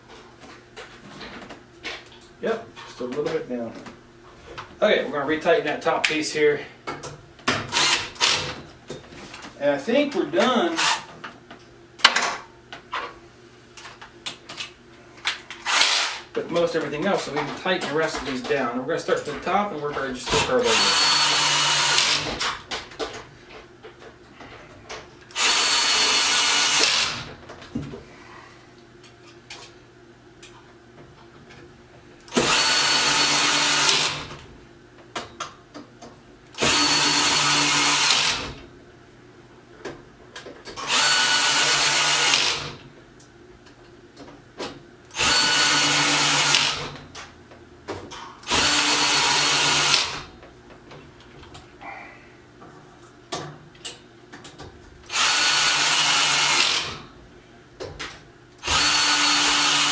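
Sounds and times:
power drill whining: 7.7s - 8.5s, 15.6s - 16.2s, 20.6s - 22.4s, 25.3s - 27.3s, 32.3s - 34.3s, 36.6s - 38.6s, 40.8s - 42.8s, 45.2s - 46.9s, 48.5s - 50.2s, 55.1s - 57.0s, 58.6s - 59.9s.

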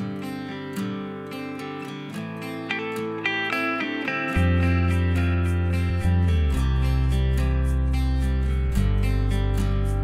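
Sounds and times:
background music with bass and beat: 3.2s - 10.0s.

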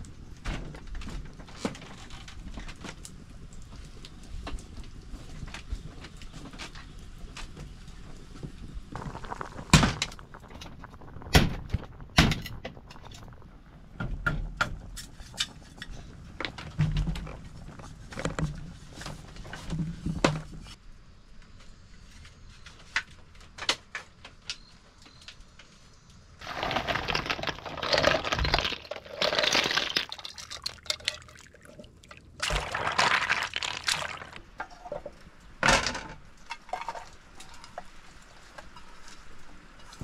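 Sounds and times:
water pouring: 8.9s - 14.0s, 26.4s - 34.9s.

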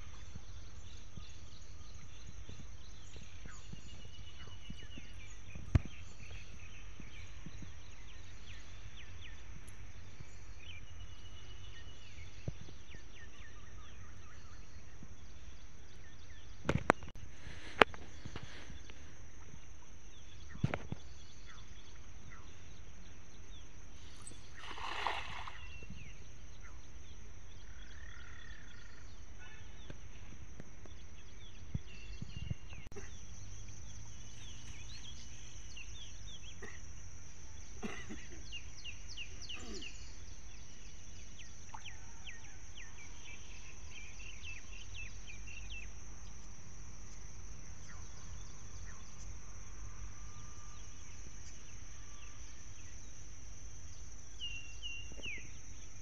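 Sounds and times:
net splashing on water: 24.4s - 25.9s.

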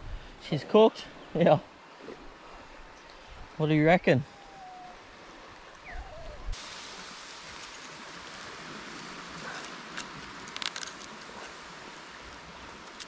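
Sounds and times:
campfire crackling and hissing: 4.2s - 13.0s.

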